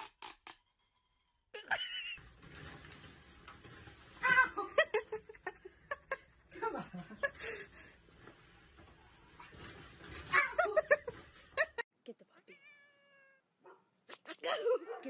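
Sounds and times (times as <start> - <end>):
person laughing: 1.6 - 2.2.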